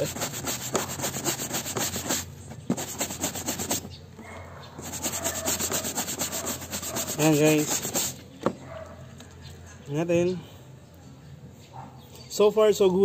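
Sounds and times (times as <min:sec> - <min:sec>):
scrub brush scrubbing on washboard: 0:00.0 - 0:03.9, 0:04.8 - 0:08.2.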